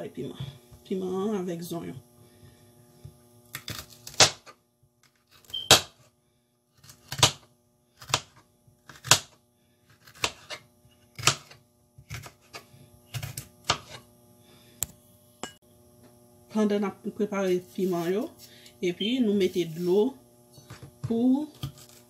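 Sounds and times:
knife chopping on cutting board: 11.2s - 14.0s.

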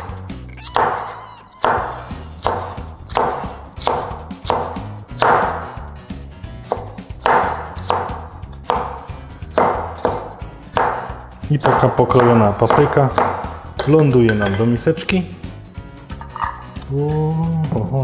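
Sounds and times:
knife chopping on cutting board: 0.7s - 5.8s, 6.6s - 14.7s.

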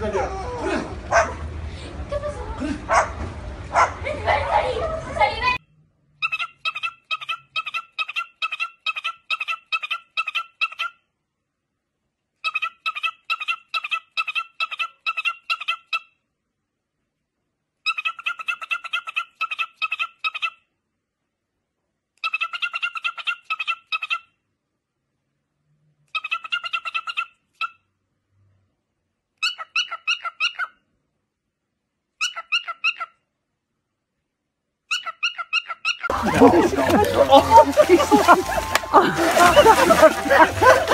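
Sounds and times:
cockatiel chirping: 32.2s - 33.1s.

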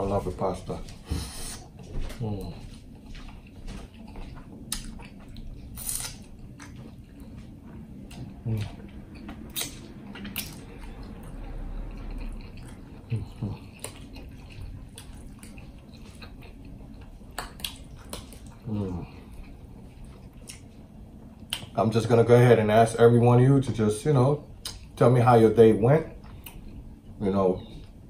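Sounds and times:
low hums: 0.0s - 28.0s
wet chewing and lip-smacking: 0.9s - 21.8s, 24.6s - 25.0s, 26.1s - 27.1s
wet mouth clicks: 9.5s - 10.7s, 21.5s - 21.7s.

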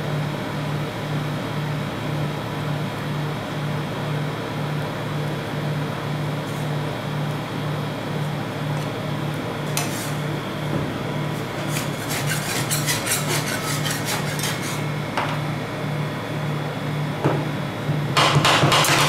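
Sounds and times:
metal spatula scraping cold plate: 11.5s - 14.8s.

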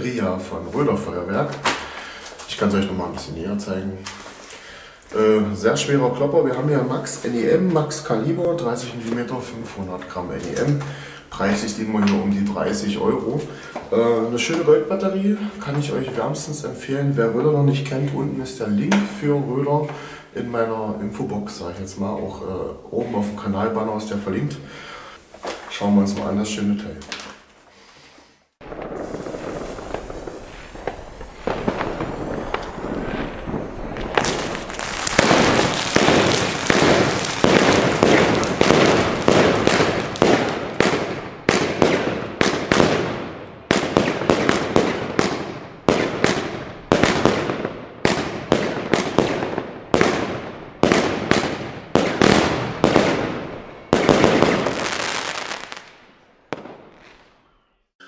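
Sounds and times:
firework launch reports: 28.6s - 55.8s
firework fuse hiss: 28.8s - 40.6s.

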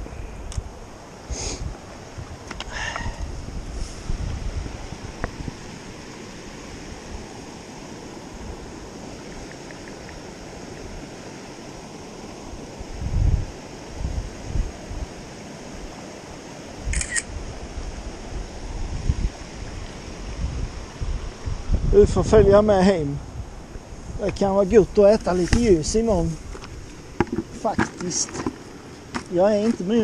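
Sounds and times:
camera handling bumps: 26.5s - 29.3s.

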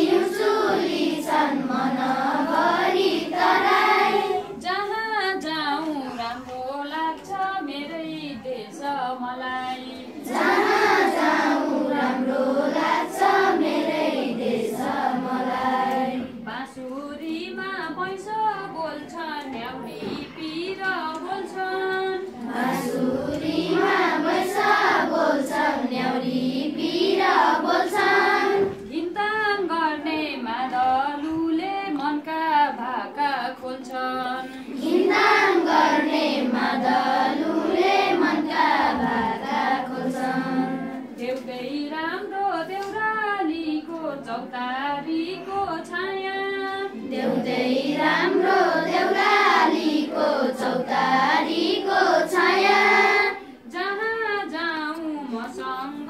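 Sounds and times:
children singing in unison: 0.0s - 4.7s, 9.6s - 16.5s, 22.2s - 28.9s, 34.3s - 41.3s, 46.7s - 53.7s.

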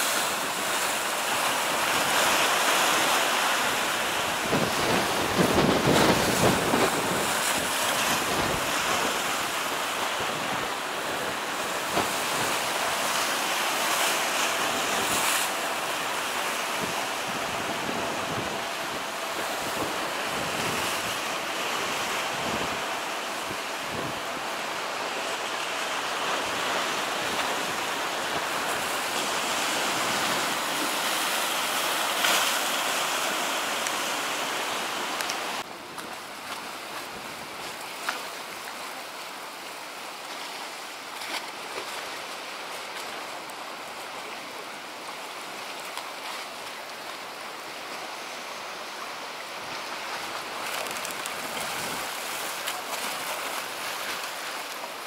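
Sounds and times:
strong wind: 0.0s - 38.0s, 48.8s - 52.6s
storm sea breaking on rocks: 0.0s - 38.7s, 49.6s - 55.0s
water sloshing against boats: 0.0s - 55.0s.

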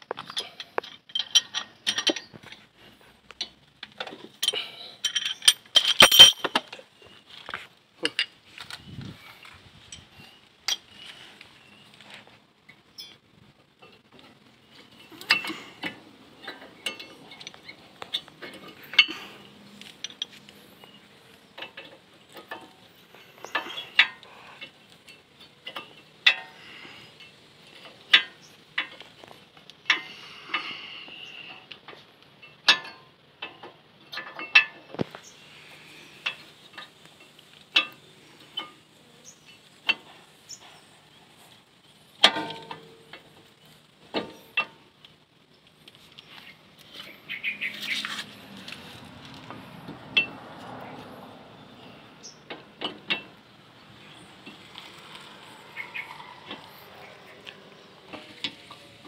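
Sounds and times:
metallic clicks and clinks: 0.0s - 6.9s, 13.8s - 30.7s.

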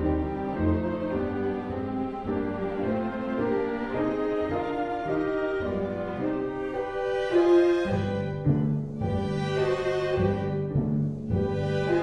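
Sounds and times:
orchestral string music: 0.0s - 12.0s.

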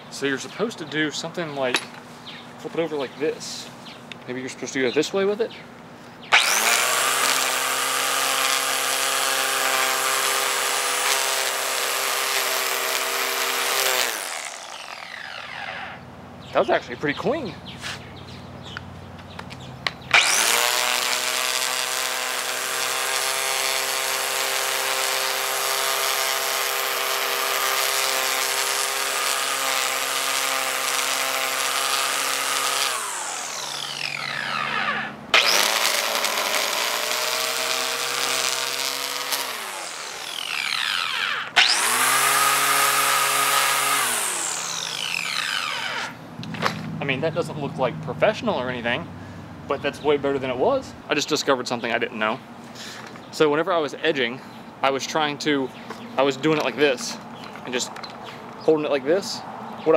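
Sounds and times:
electric string trimmer motor whining: 6.3s - 16.1s, 20.1s - 46.9s.

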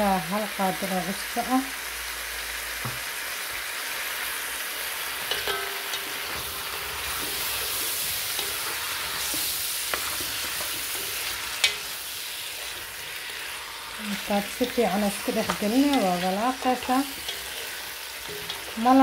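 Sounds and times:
potatoes sizzling in hot oil: 0.0s - 19.0s
spatula scraping a pot: 5.9s - 19.0s.

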